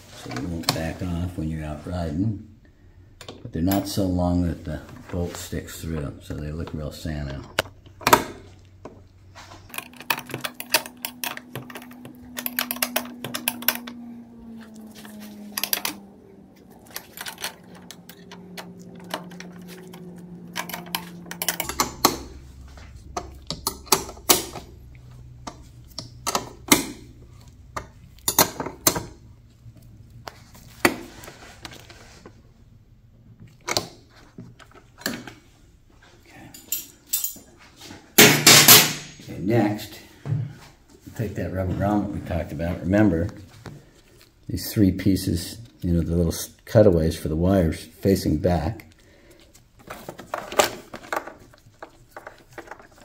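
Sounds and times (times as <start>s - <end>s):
faint low hum: 0.1s - 38.2s
tools clicking and clattering: 9.6s - 14.0s, 15.0s - 29.2s, 36.5s - 37.6s, 38.2s - 39.2s, 49.8s - 53.0s.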